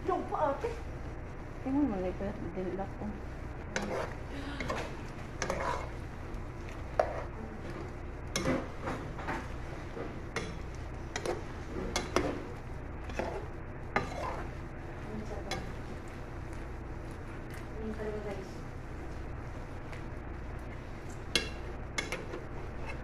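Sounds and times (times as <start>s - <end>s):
steady low hum: 0.0s - 23.0s
metal spatula scraping metal pot: 3.8s - 6.0s, 14.0s - 14.5s.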